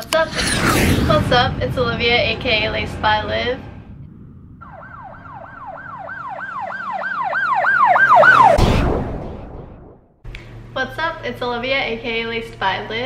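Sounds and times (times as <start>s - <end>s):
deep boom: 0.0s - 7.0s, 8.3s - 10.2s
rush of noise: 0.0s - 10.1s
siren wailing: 0.3s - 9.9s.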